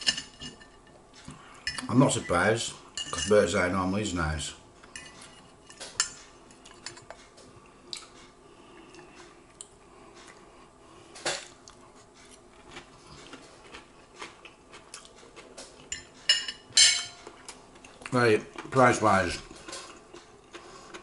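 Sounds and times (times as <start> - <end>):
cutlery clinking on a plate: 15.9 - 17.2.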